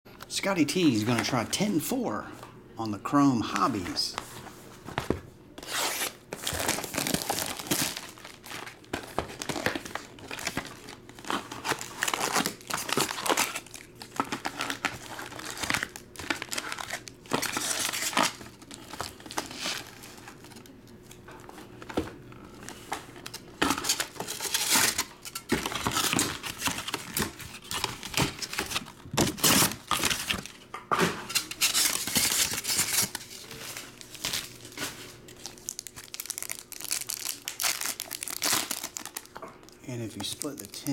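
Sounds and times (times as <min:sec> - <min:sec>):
foil packs crinkling: 0:05.6 - 0:20.7, 0:22.6 - 0:30.6, 0:31.3 - 0:40.9
wrapping being torn off: 0:05.6 - 0:20.7, 0:31.3 - 0:39.4.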